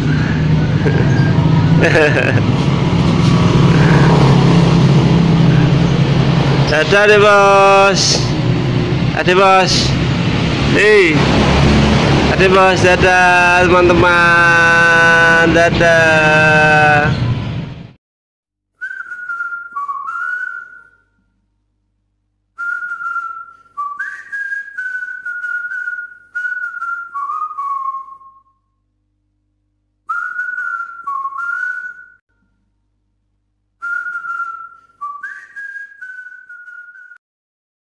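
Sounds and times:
person whistling a tune: 18.8s - 21.2s, 22.6s - 28.6s, 30.1s - 32.2s, 33.8s - 37.2s.

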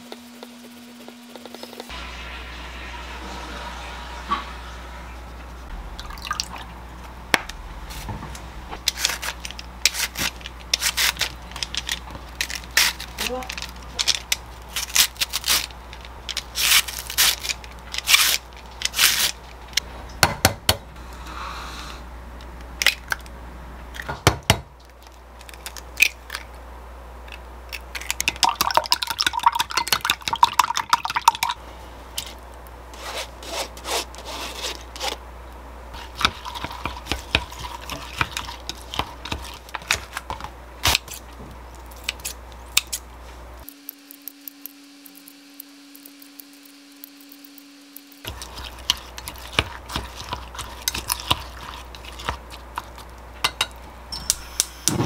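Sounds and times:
eggs beaten in glass cup: 27.8s - 31.6s, 36.0s - 40.5s, 46.0s - 53.8s.

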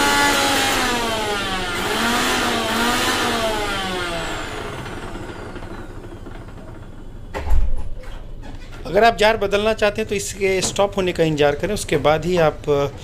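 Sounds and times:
mixer grinder motor whining: 0.0s - 7.3s.

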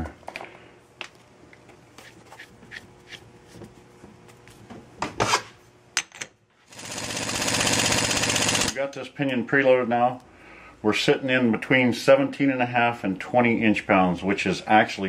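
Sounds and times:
impact wrench rattle: 6.8s - 8.7s.

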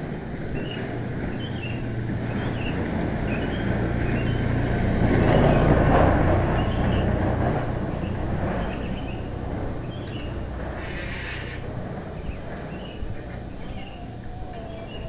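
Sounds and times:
motorcycle passing by: 0.0s - 15.0s
bird chirping: 0.5s - 4.6s, 6.5s - 7.2s, 7.9s - 15.0s.

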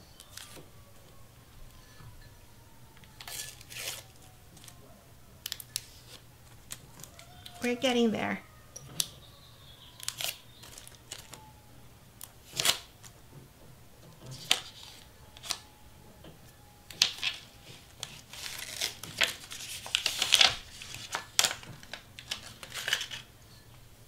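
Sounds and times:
paper crinkling and tearing: 3.2s - 4.8s, 10.0s - 11.4s, 12.2s - 13.1s, 14.3s - 15.7s, 16.9s - 23.3s.

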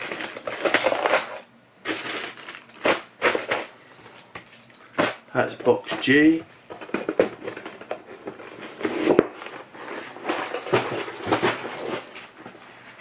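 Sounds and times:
cardboard and plastic rustling: 0.0s - 13.0s.

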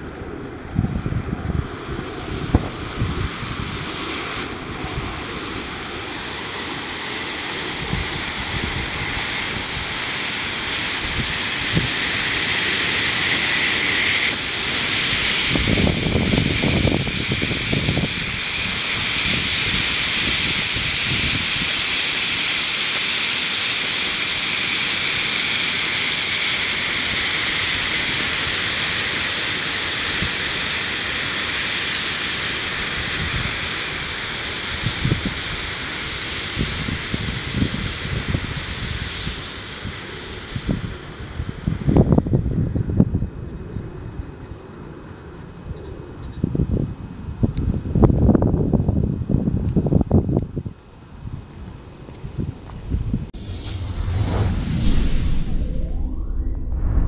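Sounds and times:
low rumble: 53.2s - 57.0s.

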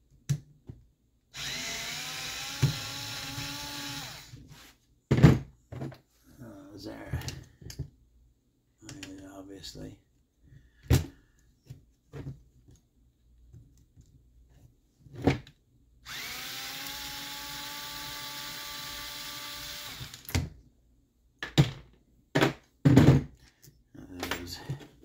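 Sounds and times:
power driver running: 1.4s - 4.3s, 16.1s - 20.2s
knocks and clicks of parts handled: 21.4s - 24.9s.

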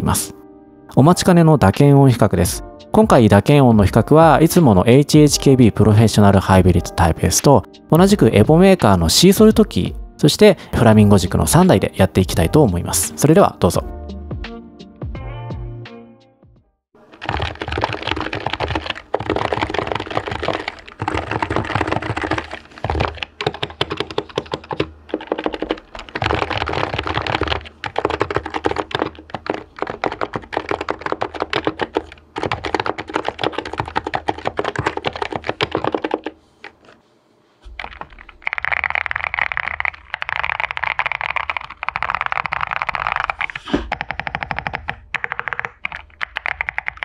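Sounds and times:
brighter higher-pitched typing: 17.1s - 36.3s, 37.9s - 47.0s
fast keyboard typing: 17.1s - 36.9s, 37.7s - 47.0s.

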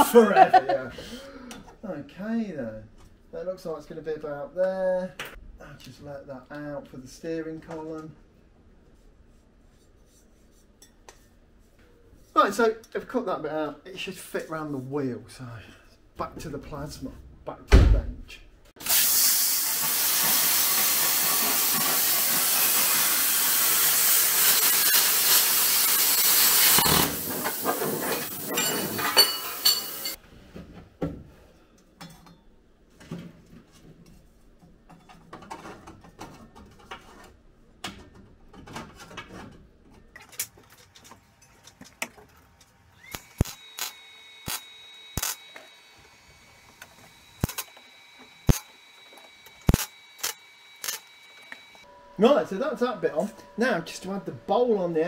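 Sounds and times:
plasma cutter hissing: 18.8s - 30.2s, 43.0s - 45.5s
tack-welding cracks: 43.0s - 45.6s, 47.4s - 47.8s, 48.4s - 48.7s, 49.6s - 51.2s.

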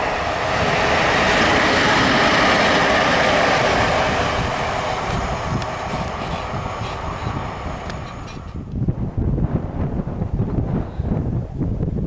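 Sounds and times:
electric locomotive passing: 0.0s - 10.8s
sharp clicks from train wheels: 0.1s - 8.8s.

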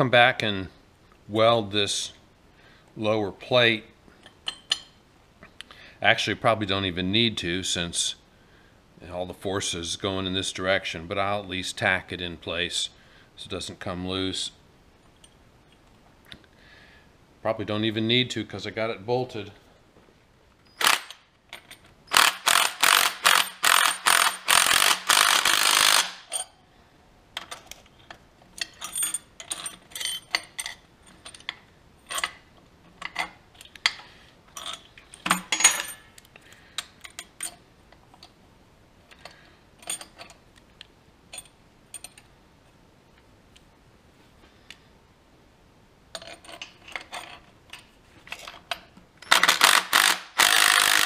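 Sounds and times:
wrench clinking on steel: 4.2s - 5.0s, 20.6s - 26.6s, 28.5s - 32.4s, 33.0s - 36.2s, 36.8s - 37.6s, 39.1s - 40.4s, 41.3s - 42.3s, 46.1s - 51.0s.

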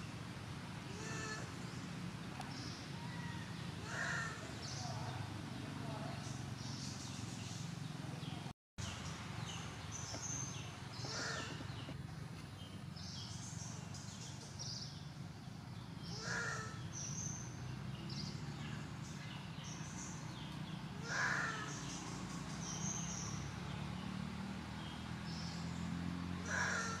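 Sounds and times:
louder bird calls: 0.9s - 1.6s, 2.5s - 5.0s, 10.2s - 12.0s, 16.0s - 17.4s, 21.0s - 23.4s, 26.4s - 27.0s.

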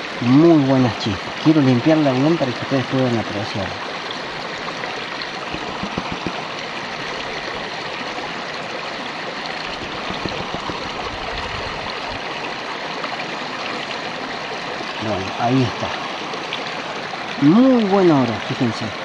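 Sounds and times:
shallow river running: 3.7s - 17.7s.

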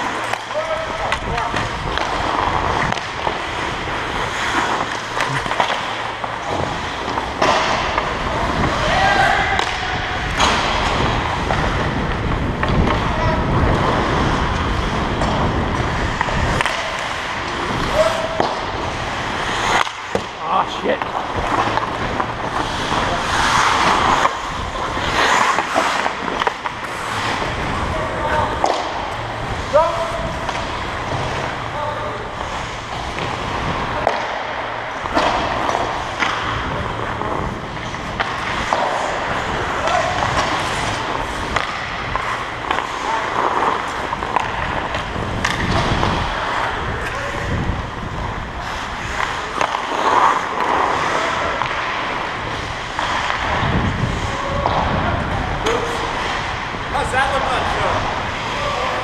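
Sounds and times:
hockey sticks and puck knocking on ice: 0.0s - 59.0s
wind buffeting microphone: 53.5s - 57.0s.

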